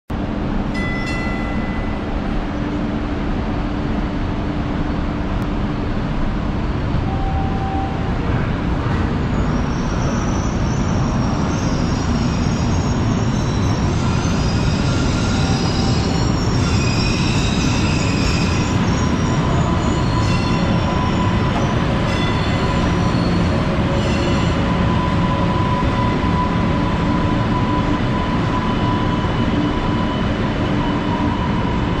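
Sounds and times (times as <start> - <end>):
train cars rumbling: 0.1 - 32.0
high wheel squeal: 9.1 - 32.0.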